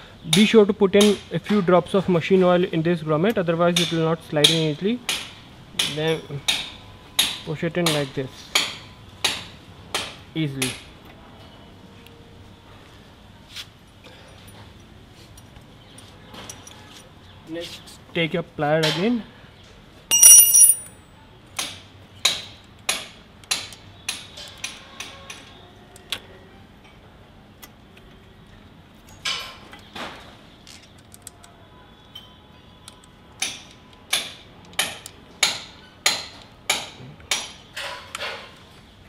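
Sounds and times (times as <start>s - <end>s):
sharp metallic clink: 20.1s - 21.0s.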